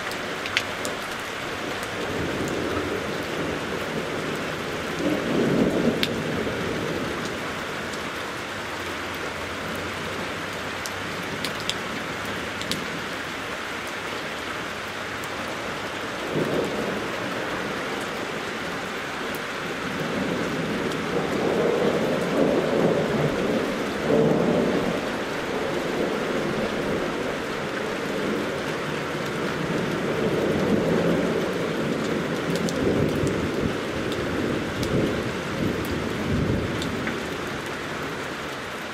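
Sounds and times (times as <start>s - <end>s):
steady rain falling: 0.0s - 38.9s
rolling thunder: 2.0s - 7.3s, 19.6s - 28.6s, 29.3s - 37.6s.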